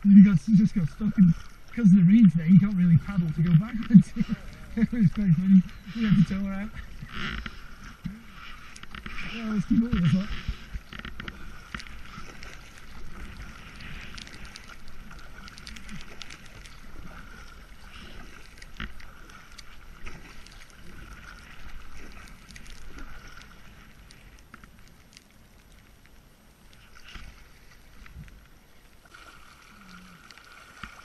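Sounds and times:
paddle strokes splashing water: 0.0 - 31.0.

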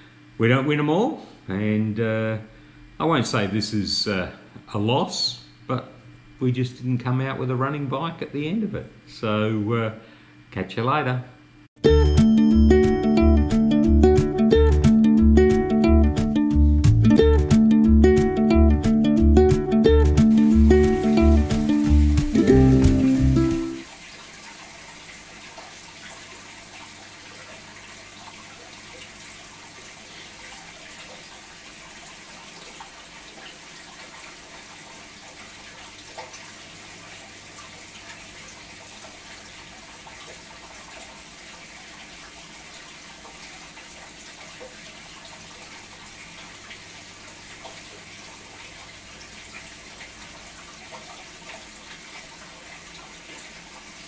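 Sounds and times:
water trickling: 12.0 - 54.0.

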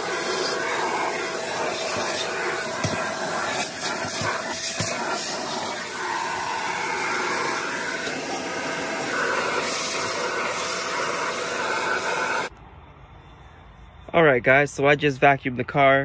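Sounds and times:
vacuum cleaner sucking debris: 0.0 - 12.5.

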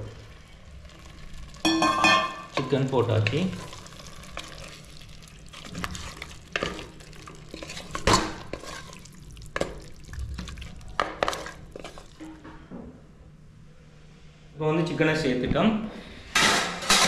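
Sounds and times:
wooden spatula scraping a pot: 5.6 - 9.8, 11.0 - 12.4.

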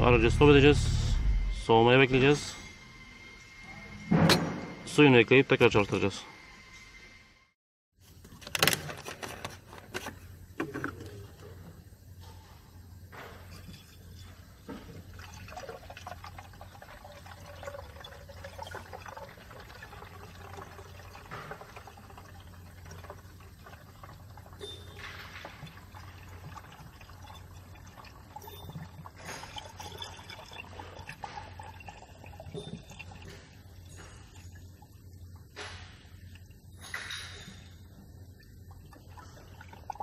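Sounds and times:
steady low hum: 0.0 - 7.6
coolant pouring into plastic tank: 13.9 - 35.6, 38.5 - 40.0.

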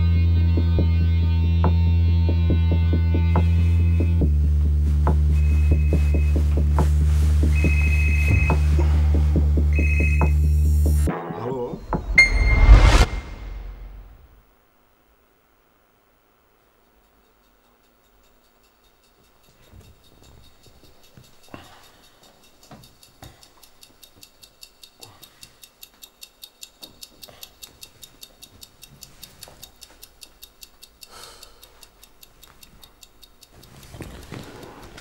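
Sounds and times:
clock ticking fast: 4.0 - 11.1, 16.8 - 35.0
blanket and robe rustling: 4.4 - 9.6
scuffs on leather sofa: 4.7 - 9.5.

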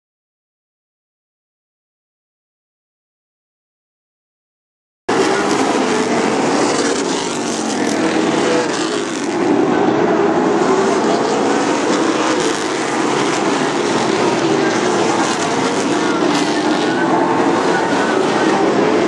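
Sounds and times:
race car engines roaring: 5.1 - 19.0.

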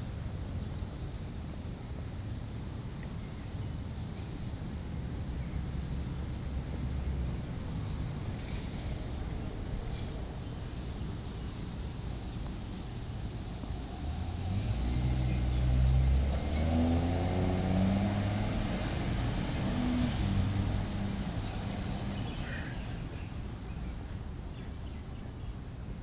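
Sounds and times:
outdoor hiss: 0.0 - 26.0
bus engine accelerating: 12.8 - 22.3.

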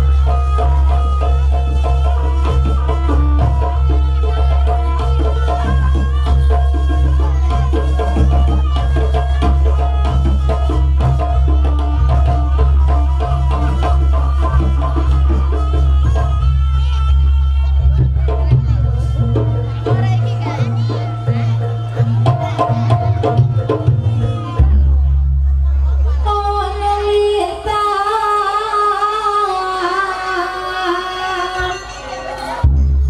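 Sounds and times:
drums driving beat: 0.0 - 25.6
heavy bass: 0.0 - 26.2, 32.6 - 33.0.

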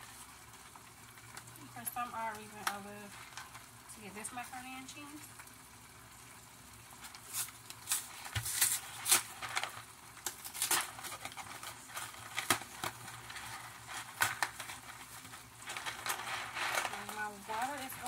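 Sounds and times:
cardboard box tearing: 7.3 - 9.7, 10.4 - 11.8.

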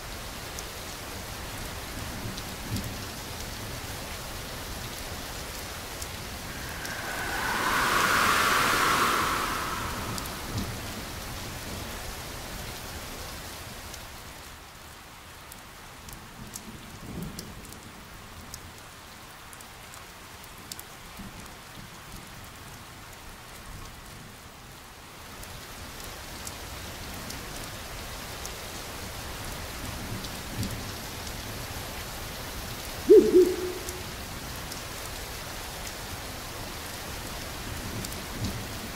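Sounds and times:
steady rain: 0.0 - 38.9
whooshing swell: 6.0 - 11.8, 33.1 - 34.2.

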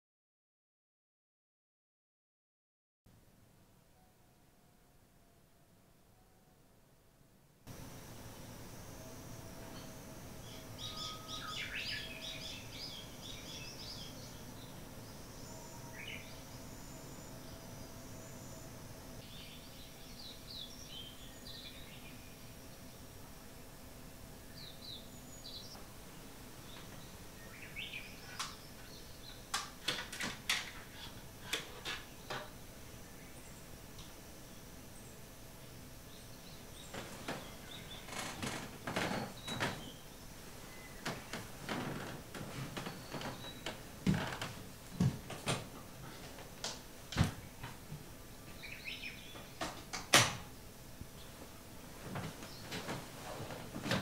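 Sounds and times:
faint bird chirps: 9.0 - 23.0
bedding rustling: 40.4 - 46.6, 51.8 - 54.0
thumps and rustles of bedding: 51.9 - 54.0.

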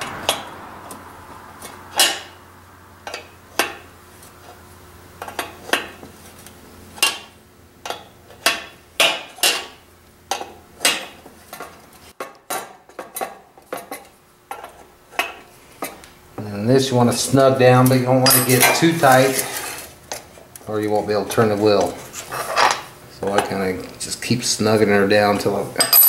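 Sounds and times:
wrench clinking on metal: 18.2 - 18.9, 25.8 - 26.0.

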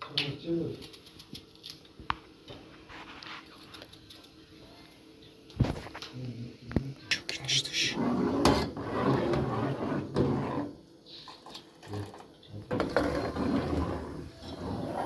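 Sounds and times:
metal ladle scraping a pot: 7.9 - 10.8, 12.7 - 15.0.

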